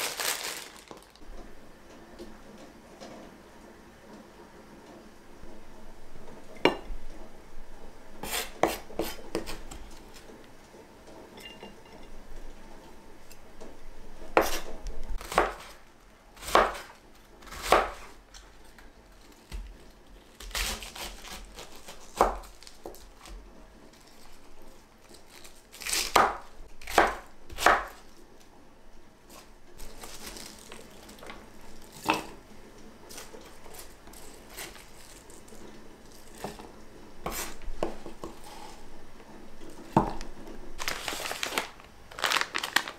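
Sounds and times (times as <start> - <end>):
knife slicing cabbage on board: 8.2 - 9.8, 14.4 - 15.8, 16.4 - 18.2, 20.4 - 23.4, 25.8 - 28.0, 37.2 - 38.8.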